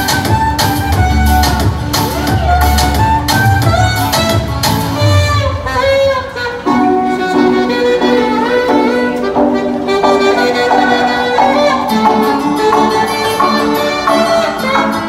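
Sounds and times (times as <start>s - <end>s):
saxophone melody: 0.0s - 15.0s.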